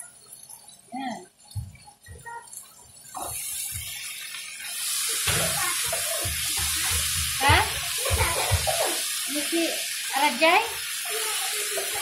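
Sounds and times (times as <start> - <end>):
food sizzling while stirred: 0.0 - 12.0
spoon knocking in a pan: 5.2 - 9.0.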